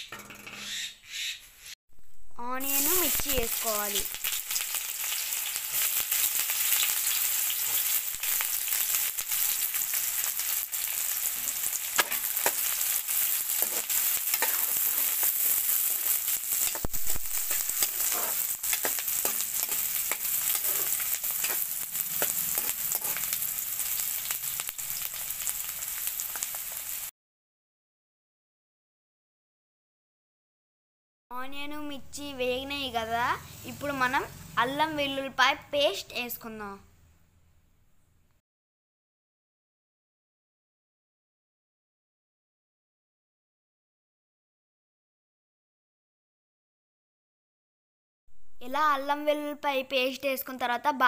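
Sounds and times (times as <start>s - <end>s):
onions sizzling in hot oil: 2.6s - 27.1s, 32.1s - 35.2s
spatula scraping metal pan: 11.4s - 23.6s.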